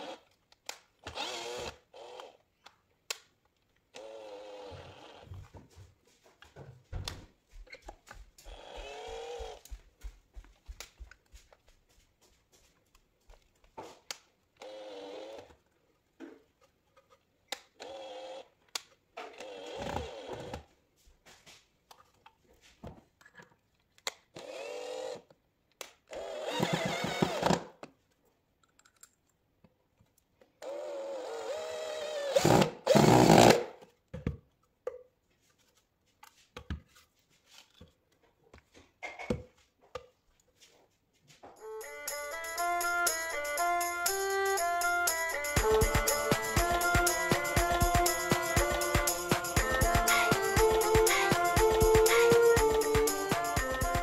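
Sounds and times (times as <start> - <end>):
cordless drill whining: 0.0 - 0.4, 1.0 - 2.4, 3.9 - 5.5, 8.5 - 9.7, 14.6 - 15.6, 17.8 - 18.6, 19.2 - 20.7, 24.4 - 25.3, 26.1 - 27.7, 30.6 - 33.8, 41.6 - 54.0.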